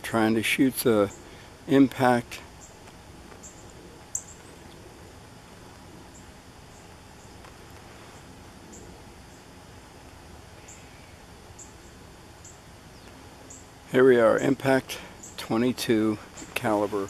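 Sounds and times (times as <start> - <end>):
outdoor background noise: 0.0 - 17.0
small animal chirping: 3.4 - 4.5.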